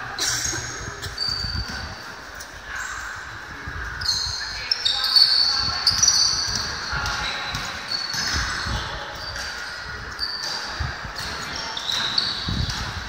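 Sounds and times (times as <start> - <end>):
sneakers squeaking: 0.0 - 3.2, 3.8 - 13.0
voices of players and spectators: 0.0 - 13.0.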